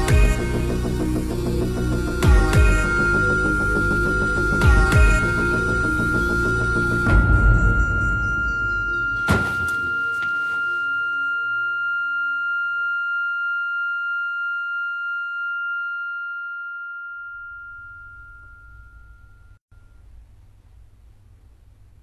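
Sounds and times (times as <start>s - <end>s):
high ringing tone: 0.0s - 20.1s
sharp hit: 6.8s - 10.7s.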